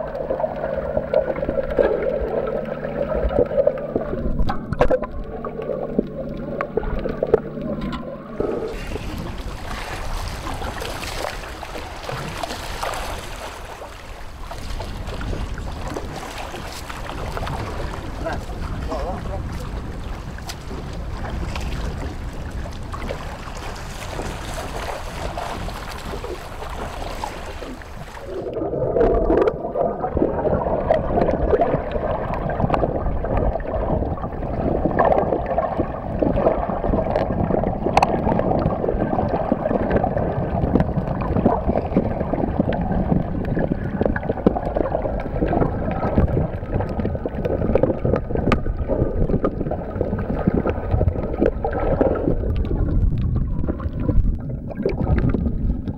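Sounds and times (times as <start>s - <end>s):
muffled underwater rush: 0.0s - 55.9s
underwater clicks and crackles: 0.0s - 55.9s
wind: 4.1s - 28.7s
water washing against boat: 8.3s - 55.9s.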